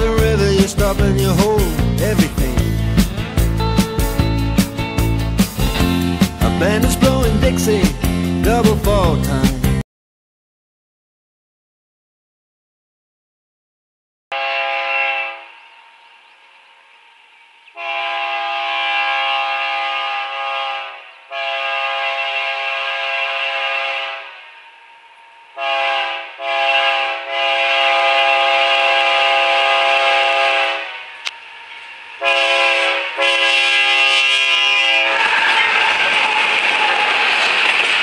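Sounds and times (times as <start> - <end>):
locomotive air horn blasts: 14.3 - 15.6, 17.8 - 24.7, 25.6 - 31.3, 32.2 - 36.4.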